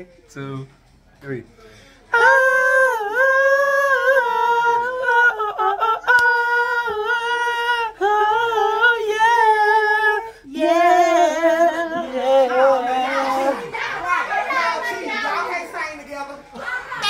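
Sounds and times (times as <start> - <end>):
people singing in unison: 2.1 - 14.4.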